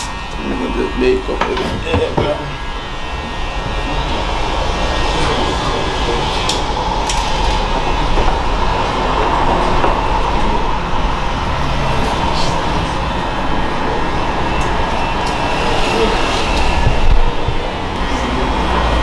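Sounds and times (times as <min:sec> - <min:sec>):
vehicle rumble and hiss: 0:03.5 - 0:19.0.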